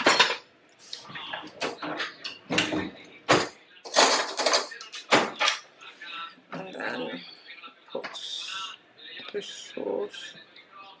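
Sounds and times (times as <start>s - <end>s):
plates pans and cutlery clinking: 0.0s - 5.7s.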